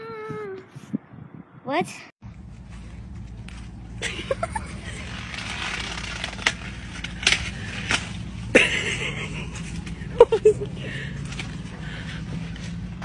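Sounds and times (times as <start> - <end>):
steady low rumble: 0.0 - 13.0
corn leaves rustling: 2.5 - 8.6
stalks cracking: 4.9 - 8.3.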